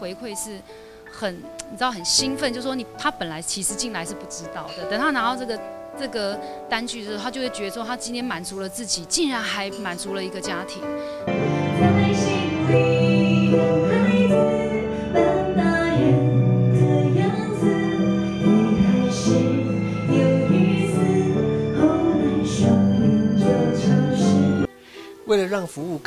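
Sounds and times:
electronic keyboard: 0.0s - 25.2s
woman singing: 11.6s - 24.7s.

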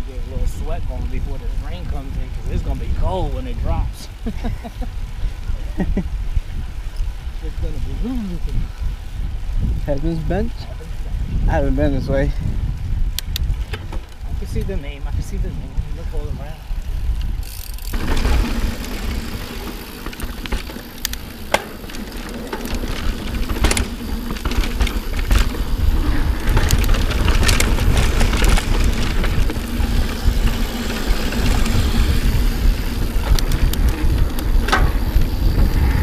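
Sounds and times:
wind buffeting microphone: 0.0s - 36.0s
bike rattling over bumps: 8.6s - 36.0s
tyres rolling on dirt: 16.8s - 36.0s.

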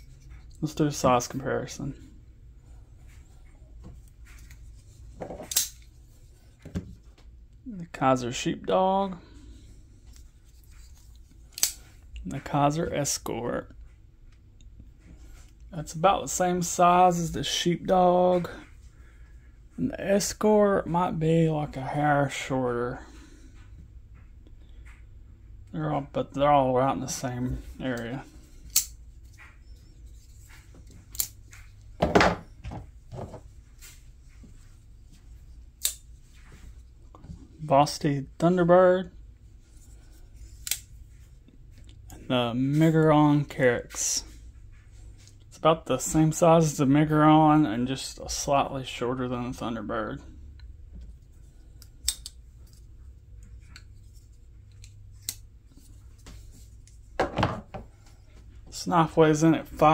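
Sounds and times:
metallic clicks of folding knives: 5.5s - 5.8s, 11.5s - 11.8s, 28.7s - 28.9s, 31.1s - 31.4s
objects knocking: 32.0s - 33.4s, 57.2s - 57.9s.

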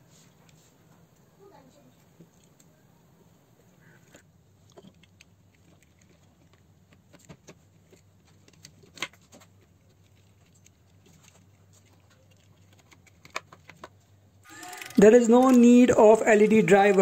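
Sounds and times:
plastic parts clicking and rustling: 4.1s - 17.0s.

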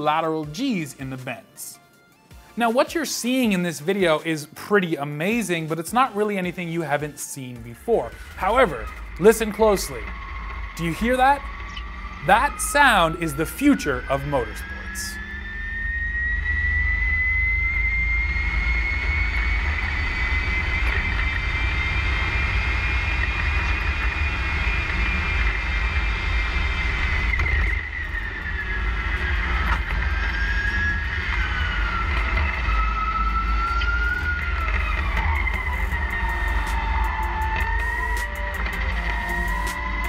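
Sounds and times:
electric motor whining: 8.0s - 40.0s.

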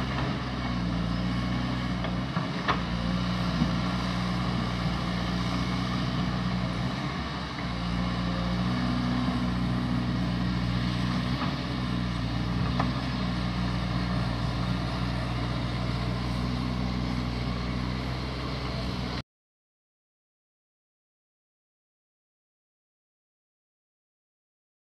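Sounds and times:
excavator diesel engine running: 0.0s - 19.2s.

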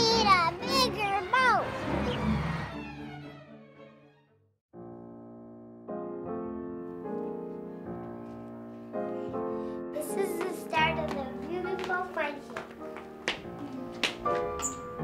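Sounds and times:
slow piano chords: 4.8s - 15.0s.

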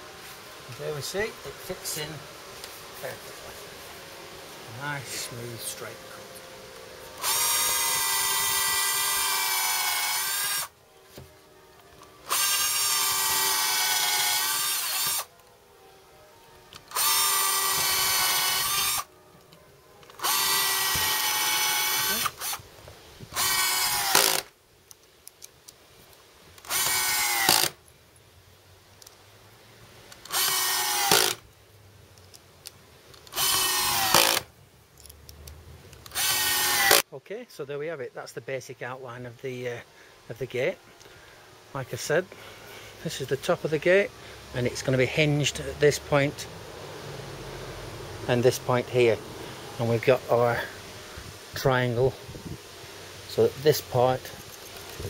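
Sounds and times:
power drill drilling into wood: 7.2s - 10.7s, 12.3s - 15.3s, 16.9s - 19.1s, 20.2s - 22.6s, 23.3s - 24.5s, 26.6s - 27.8s, 30.3s - 31.4s, 33.3s - 34.5s, 36.1s - 37.0s.

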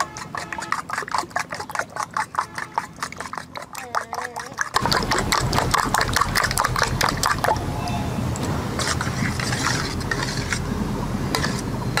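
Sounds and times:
egg sloshing: 0.0s - 7.7s, 8.8s - 10.6s.

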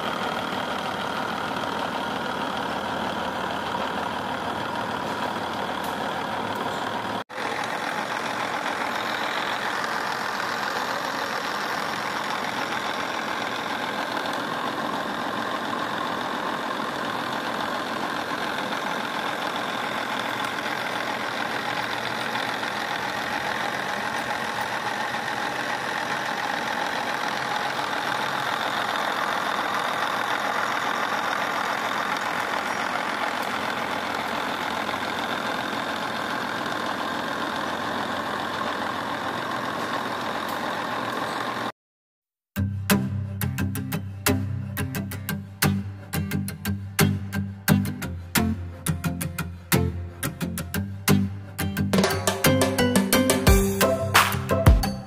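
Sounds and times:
milling machine cutting metal: 0.0s - 41.7s.

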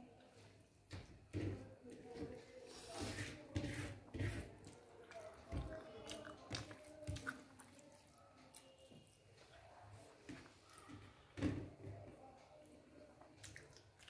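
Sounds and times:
fingers working rice on plate: 3.0s - 8.2s
person chewing and smacking: 5.0s - 9.2s, 13.2s - 14.0s.

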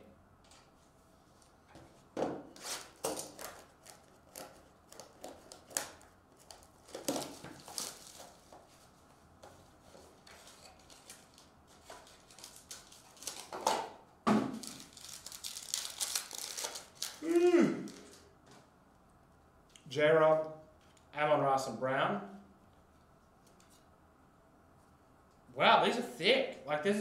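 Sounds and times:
foil pack crinkling: 2.8s - 8.7s, 10.3s - 13.6s, 14.5s - 18.2s.

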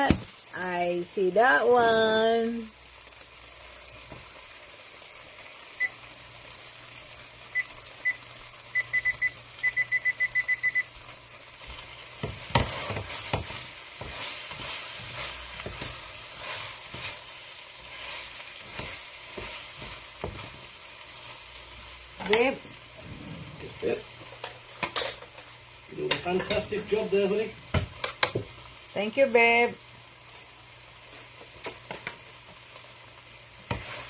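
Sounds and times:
tofu frying in a pan: 0.0s - 34.0s
short electronic beeps: 7.5s - 10.9s.

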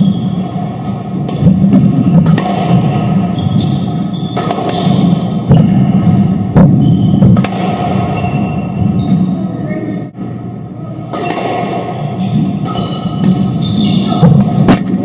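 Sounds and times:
squash ball knocks: 0.7s - 3.2s, 4.3s - 8.2s, 11.1s - 12.0s, 12.6s - 15.0s
shoes squeaking on hardwood: 12.2s - 14.8s.

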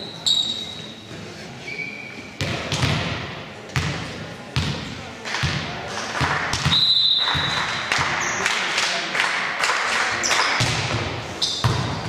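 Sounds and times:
short high squeaks: 0.0s - 1.0s
basketball bouncing on court: 2.4s - 8.3s, 10.5s - 12.0s.

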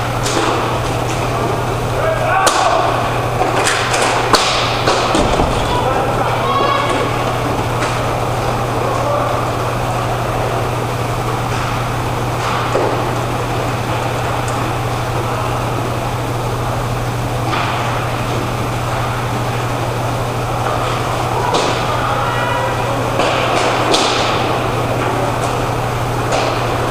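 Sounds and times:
low hum and rumble: 0.0s - 26.9s
hockey sticks knocking puck: 2.4s - 8.1s, 11.5s - 13.1s, 20.6s - 22.0s, 23.1s - 25.6s, 26.3s - 26.8s.

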